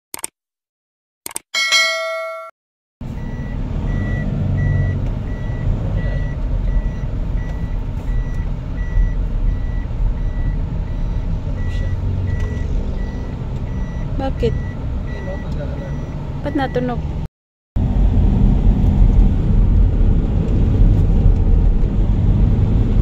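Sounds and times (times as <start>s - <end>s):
engine and road rumble: 3.0s - 23.0s
electronic warning beeps: 3.2s - 16.9s.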